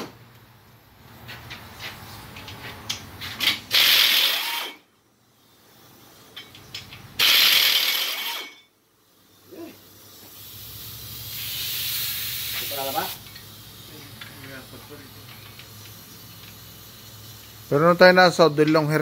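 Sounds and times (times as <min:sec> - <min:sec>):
pneumatic air ratchet whirring: 0:02.4 - 0:05.6, 0:06.4 - 0:08.7, 0:09.3 - 0:17.8
air hiss: 0:09.0 - 0:19.0.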